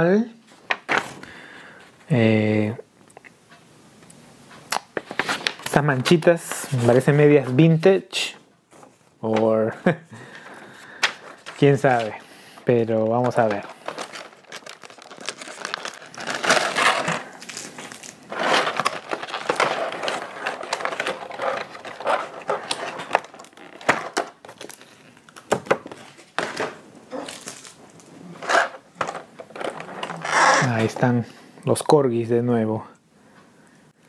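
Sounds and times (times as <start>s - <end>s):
plastic packaging crinkling: 10.2s - 31.2s.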